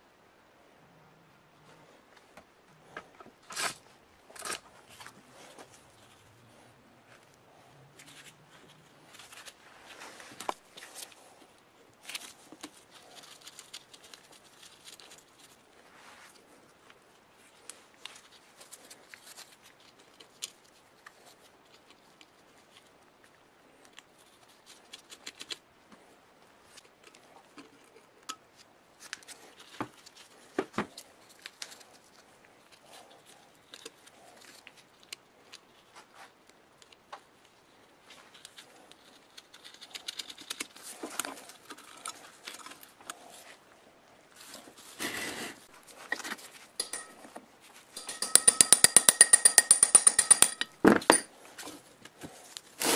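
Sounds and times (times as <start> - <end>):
hand tools clicking on metal: 46.8 - 47.4, 48.0 - 51.3
screwdriver prying at metal cover: 46.8 - 47.4, 48.0 - 51.3.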